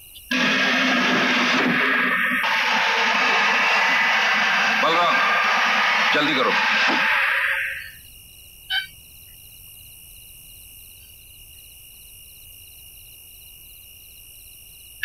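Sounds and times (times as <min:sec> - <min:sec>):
cricket-like chirping: 0:00.0 - 0:00.3, 0:08.0 - 0:15.0
short sharp sound: 0:00.3 - 0:08.0
steady high whine: 0:00.3 - 0:08.0.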